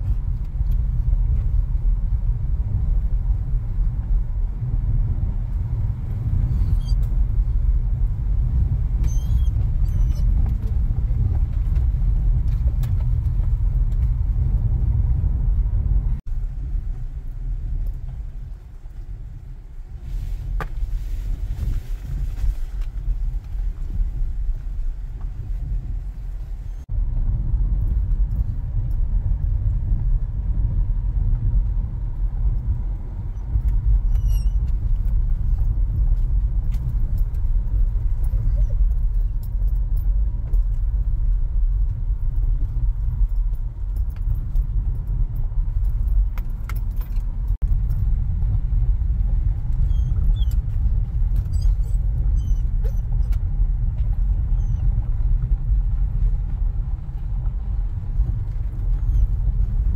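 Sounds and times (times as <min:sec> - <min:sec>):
car engine and tyre rumble: 0:00.0 - 0:59.9
light clicks and rattles: 0:33.5 - 0:59.9.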